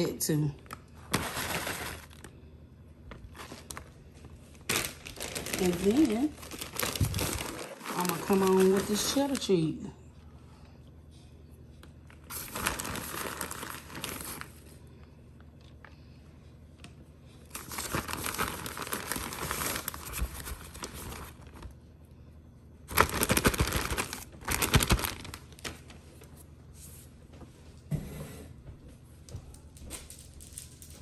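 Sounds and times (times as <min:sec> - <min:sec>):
plastic bag crinkling: 0:00.6 - 0:02.4, 0:03.1 - 0:09.5, 0:12.1 - 0:14.8, 0:17.5 - 0:21.8, 0:22.9 - 0:26.3.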